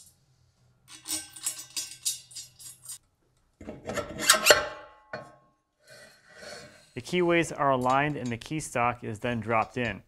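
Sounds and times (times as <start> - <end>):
metal clatter with ring: 0.9 - 3.0
metallic clinking of bolts: 0.9 - 3.1.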